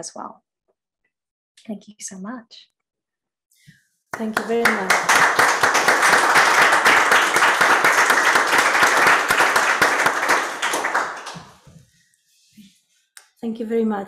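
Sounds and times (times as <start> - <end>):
applause: 4.1 - 11.7.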